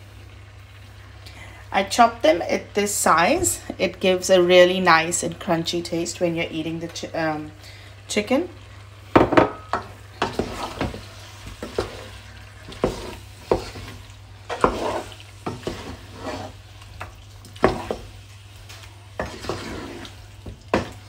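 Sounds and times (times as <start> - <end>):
food sizzling in oil: 0.0 - 21.0
wooden spoon scraping pot: 10.2 - 18.2, 19.1 - 21.0.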